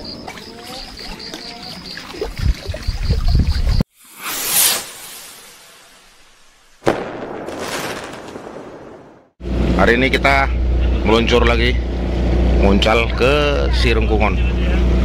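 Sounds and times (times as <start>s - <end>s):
whoosh: 3.9s - 7.6s
sudden hit with noisy tail: 4.5s - 9.8s.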